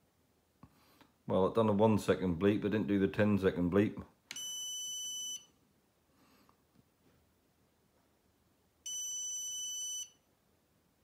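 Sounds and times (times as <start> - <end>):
high-pitched buzzer bleep: 4.4 - 5.5, 8.9 - 10.2.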